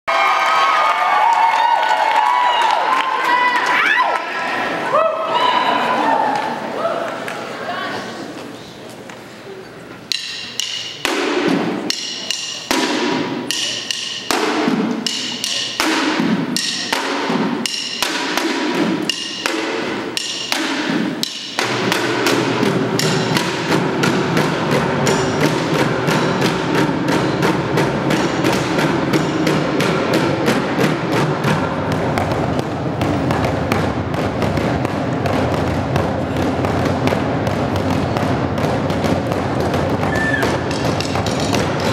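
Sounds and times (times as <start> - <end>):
drumming on plastic buckets: 10.1 - 41.9.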